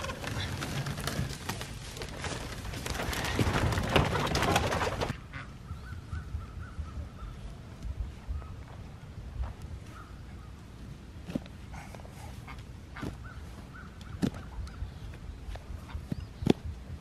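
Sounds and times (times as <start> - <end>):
coop dragged over wood chips: 0.0 - 5.1.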